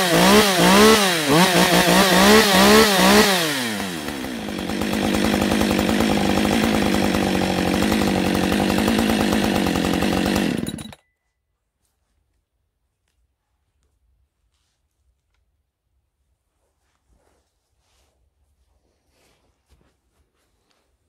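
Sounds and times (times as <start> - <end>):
chainsaw engine revving and idling: 0.0 - 11.0.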